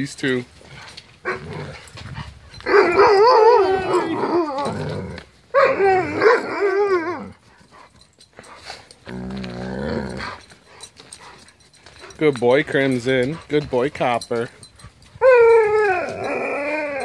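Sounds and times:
dog howling: 2.6 - 7.4, 15.1 - 17.0.

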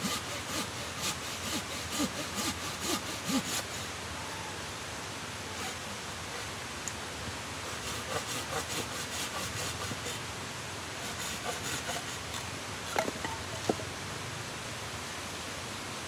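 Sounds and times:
hand saw cutting wood: 0.0 - 3.9, 5.5 - 6.5, 7.7 - 10.2, 11.0 - 13.8.

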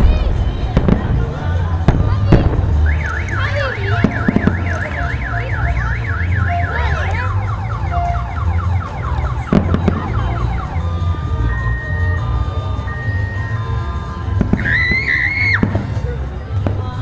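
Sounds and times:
car alarm warbling: 2.8 - 15.7.

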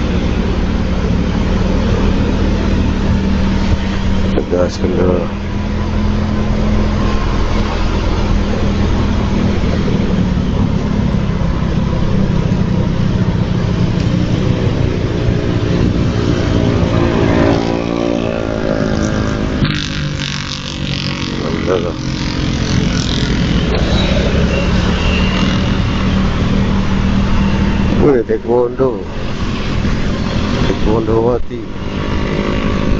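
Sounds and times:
wind rush on microphone: 0.0 - 21.6
motor scooter engine running: 0.0 - 28.0.

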